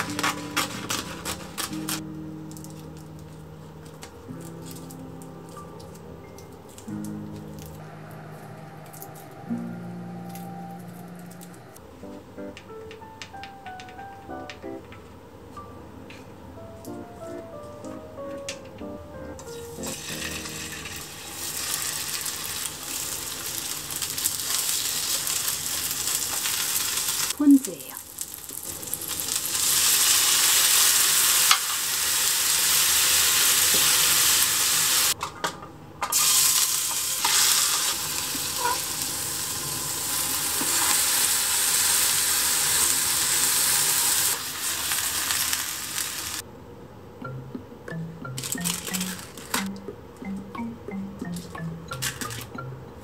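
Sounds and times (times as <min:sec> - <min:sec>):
food sizzling in a frying pan: 0:19.5 - 0:35.2, 0:36.1 - 0:46.4.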